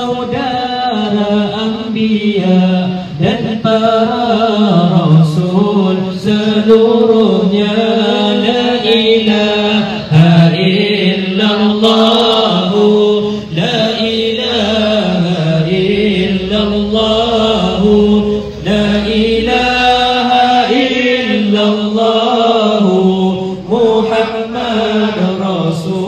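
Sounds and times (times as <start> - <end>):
voices chanting melodic lines: 5.8 - 26.0.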